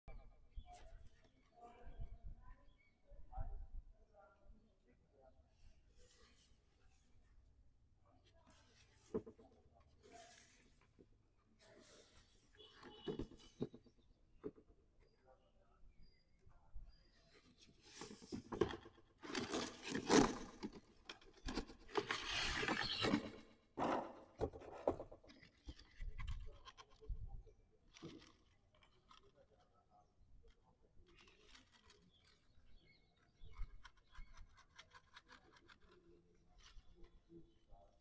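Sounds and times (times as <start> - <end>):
cardboard box rustling: 17.9 - 23.4.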